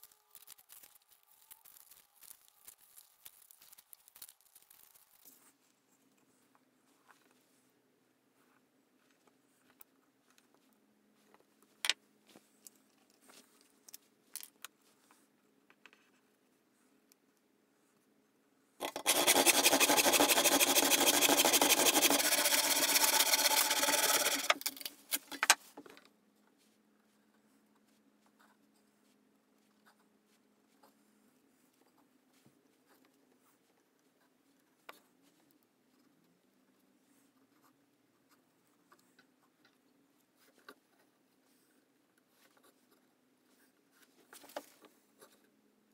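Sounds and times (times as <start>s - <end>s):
handsaw sawing wood: 18.8s - 24.7s
pencil scratching: 18.8s - 24.9s.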